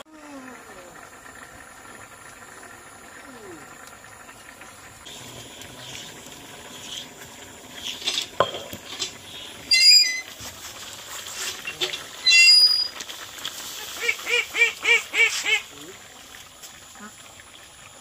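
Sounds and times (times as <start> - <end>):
stone block knocking down: 8.3 - 8.8.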